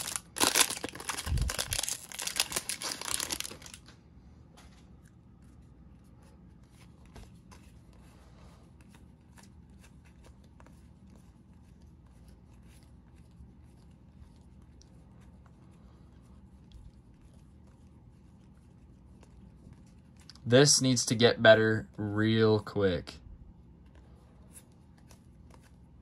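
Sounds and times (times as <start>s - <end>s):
trading cards rustling and clicking: 0.0s - 4.0s, 4.6s - 15.7s, 23.8s - 26.0s.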